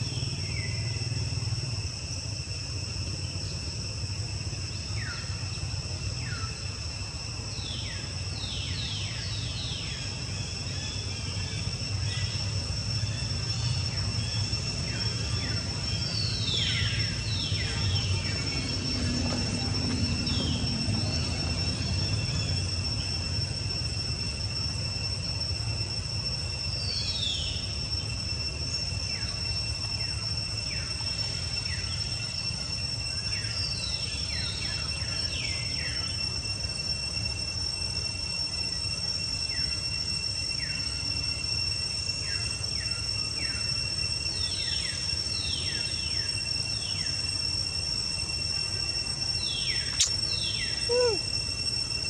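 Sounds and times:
insects droning: 0:00.0 - 0:52.0
downward-sweeping bird calls: 0:42.2 - 0:52.0.

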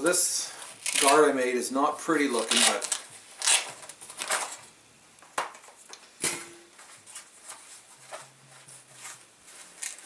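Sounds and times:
fabric rustling: 0:06.8 - 0:10.0.

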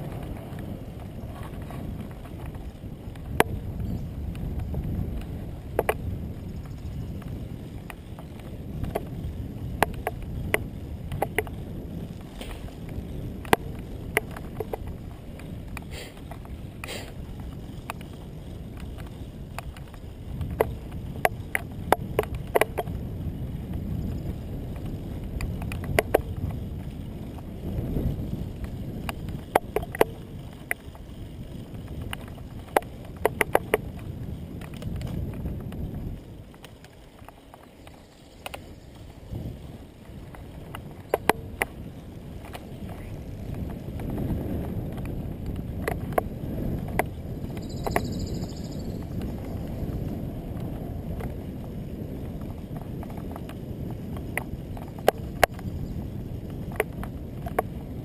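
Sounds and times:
bike rattling clicks and knocks: 0:00.0 - 0:58.0
bike tyres rumbling on asphalt: 0:00.0 - 0:58.0
wind on microphone: 0:00.0 - 0:58.0.

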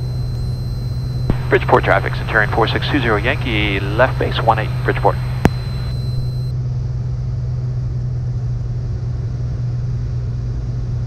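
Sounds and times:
airplane engine and propeller droning: 0:00.0 - 0:06.5.

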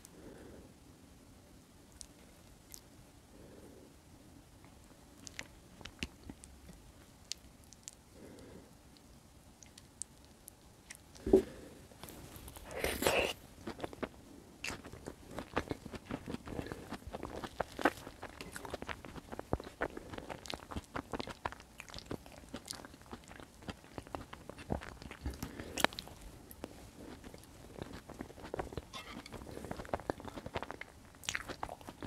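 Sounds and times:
chewing and wet mouth smacks: 0:13.1 - 0:32.0.

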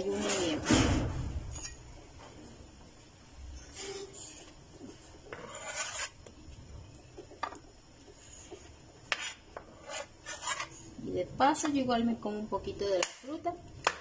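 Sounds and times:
knife scraping on cutting board: 0:05.3 - 0:06.2, 0:08.3 - 0:10.8.

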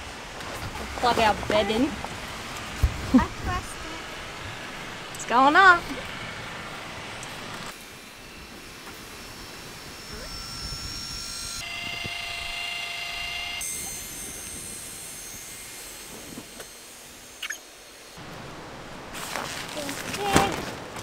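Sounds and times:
lift motor humming with high whine: 0:00.0 - 0:19.1.

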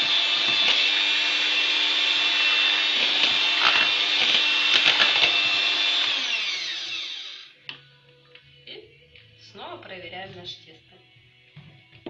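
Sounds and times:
electric mixer running: 0:00.0 - 0:07.6.

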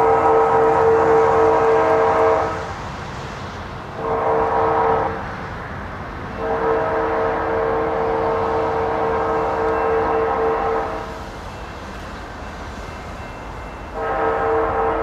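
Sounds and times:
locomotive air horn blasts: 0:00.0 - 0:02.7, 0:04.0 - 0:05.3, 0:06.3 - 0:11.2, 0:13.8 - 0:15.0.

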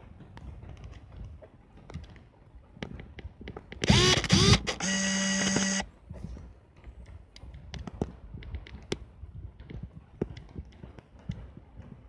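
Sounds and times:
camera shutter clicks: 0:03.8 - 0:05.8
camera motor whirring: 0:03.8 - 0:05.9.

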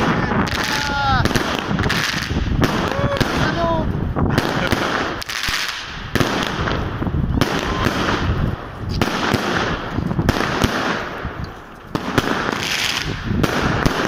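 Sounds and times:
fireworks bangs and crackling: 0:00.0 - 0:14.0.

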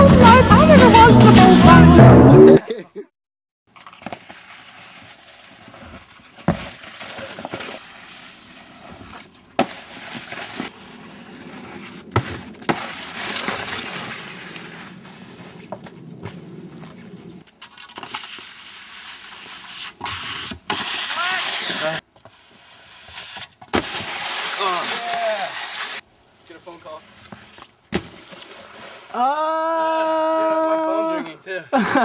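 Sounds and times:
snowskate scraping over snow: 0:03.8 - 0:29.2.

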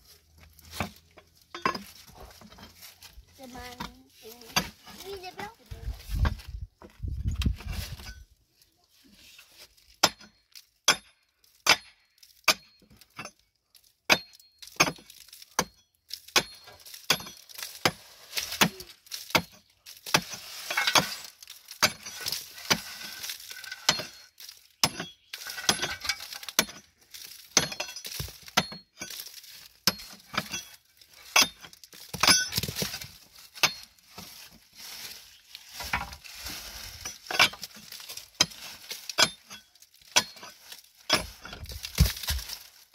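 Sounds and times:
pickaxe striking rock: 0:10.0 - 0:13.3, 0:14.1 - 0:21.2, 0:24.8 - 0:26.8, 0:31.4 - 0:33.0, 0:39.2 - 0:40.5, 0:41.1 - 0:42.6.

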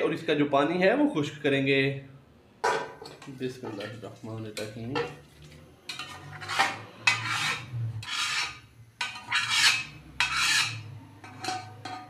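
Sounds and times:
spoon scraping metal pot: 0:03.1 - 0:12.0.

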